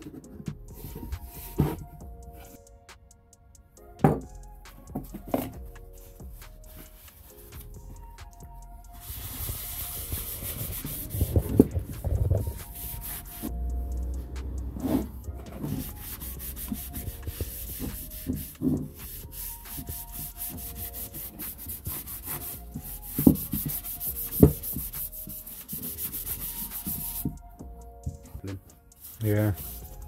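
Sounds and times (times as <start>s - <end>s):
cloth wiping wood: 9.0s - 13.6s, 14.6s - 27.3s, 29.0s - 30.0s.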